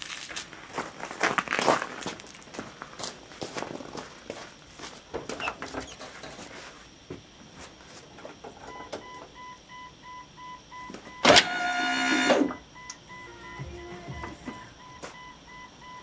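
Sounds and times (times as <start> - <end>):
electronic beeping: 8.7 - 16.0
hydraulic pump motor whining: 11.2 - 15.0.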